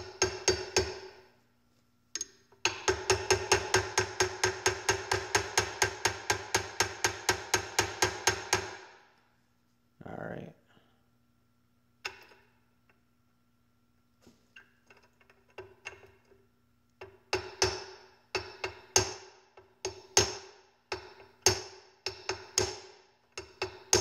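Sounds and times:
hammer tapping metal punch: 0.0 - 1.2, 2.2 - 8.8, 17.0 - 24.0.

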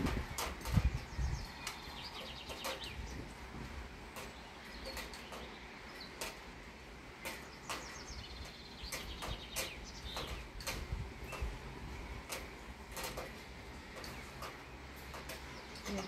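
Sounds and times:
steady rain: 0.0 - 16.0.

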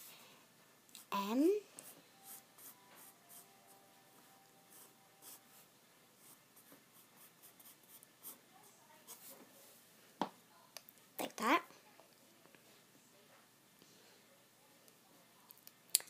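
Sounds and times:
pencil scratching on paper: 4.7 - 8.4.

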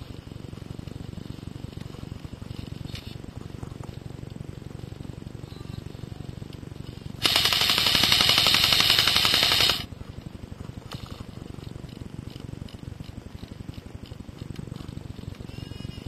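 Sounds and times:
airsoft gun full-auto rattle: 7.2 - 9.9.

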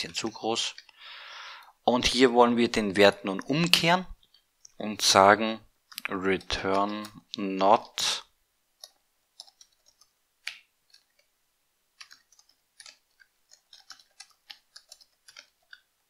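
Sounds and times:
computer keyboard typing: 8.8 - 10.2, 12.0 - 16.0.

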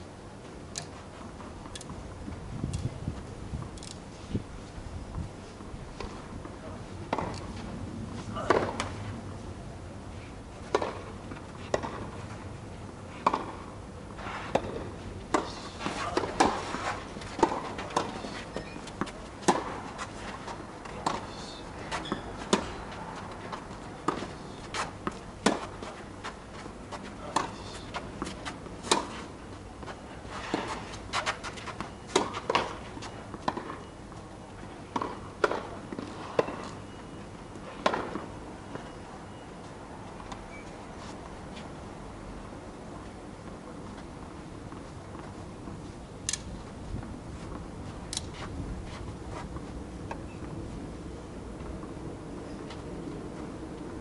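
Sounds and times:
racket striking tennis ball: 8.4 - 9.0, 14.4 - 22.9, 24.0 - 26.0, 27.3 - 29.3, 34.9 - 36.7
footsteps scuffing on court: 46.6 - 50.6.

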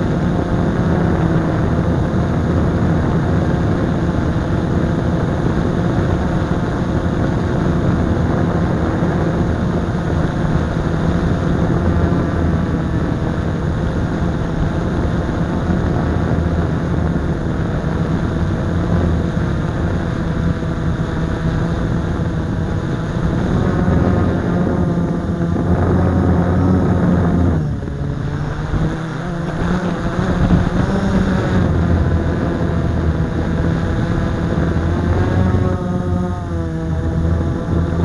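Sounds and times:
quadcopter motors buzzing: 0.0 - 38.0.

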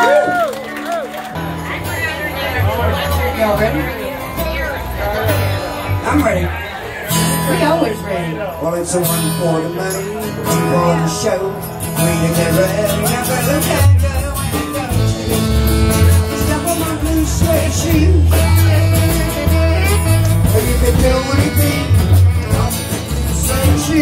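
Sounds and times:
bass: 0.0 - 24.0
live band with guitars and saxophone: 0.0 - 24.0
person singing: 8.0 - 24.0.

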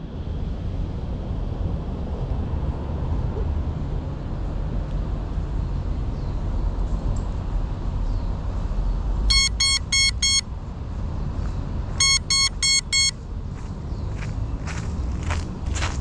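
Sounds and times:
steady low rumble: 0.0 - 16.0
short high beeps: 9.3 - 10.4, 12.0 - 13.2.

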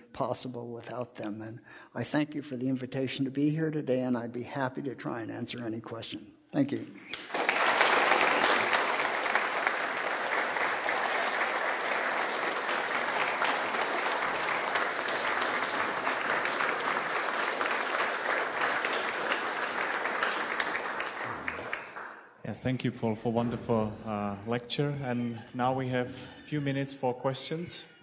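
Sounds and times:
audience applauding: 7.1 - 22.3.

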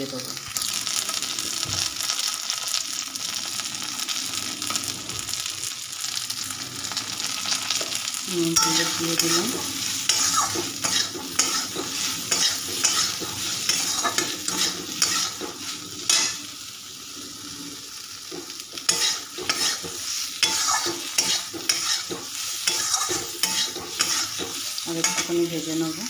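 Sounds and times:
oil sizzling: 0.0 - 26.0
metal spatula scraping a pan: 8.5 - 25.7.

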